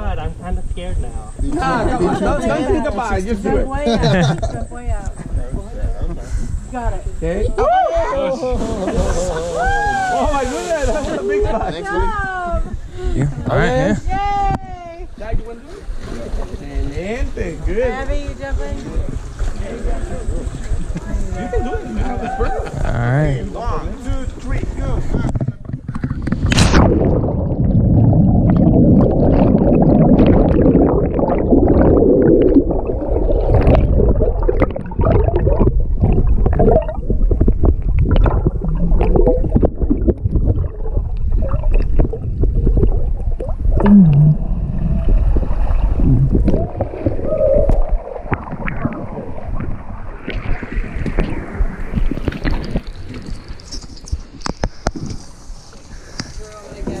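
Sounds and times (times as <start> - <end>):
airy outdoor hiss: 0.0 - 12.6
muffled underwater rumble: 0.0 - 57.0
water splash: 7.9 - 11.4, 25.5 - 55.8
bubbling and gurgling water: 24.8 - 56.3.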